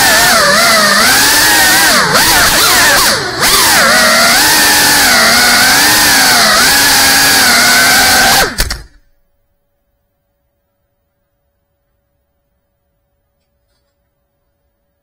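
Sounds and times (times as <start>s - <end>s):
drone motors whining: 0.0s - 9.0s.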